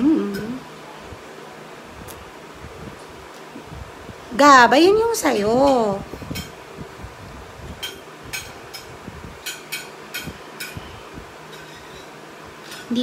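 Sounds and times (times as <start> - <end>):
metal spoon scraping ceramic plate: 11.5 - 12.2.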